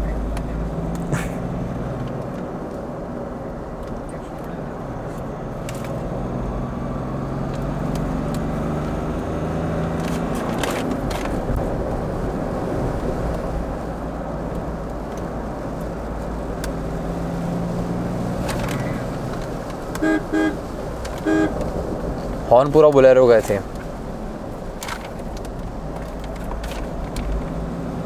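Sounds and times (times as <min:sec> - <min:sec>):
diesel engine in car cabin: 0:00.0 - 0:28.0
car horn beeps: 0:19.9 - 0:21.7.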